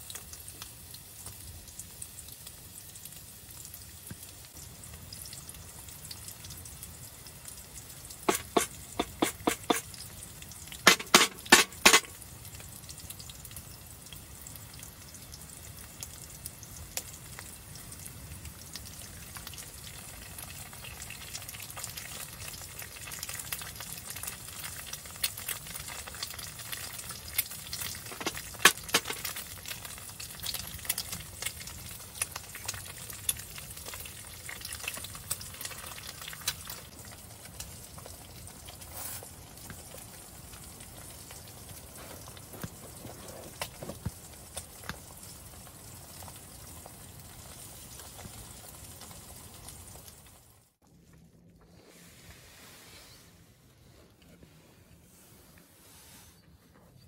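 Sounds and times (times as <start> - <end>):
food sizzling in a pan: 0.0 - 50.8
fat popping: 8.3 - 10.0, 10.8 - 12.2, 28.0 - 29.4.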